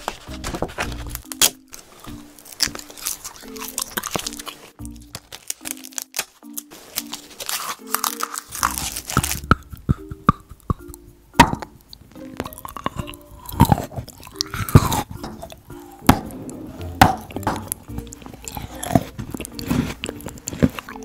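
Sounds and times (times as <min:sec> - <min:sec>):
soft background music: 0:00.0 - 0:21.0
crunching and chewing food: 0:00.8 - 0:16.3, 0:17.2 - 0:21.0.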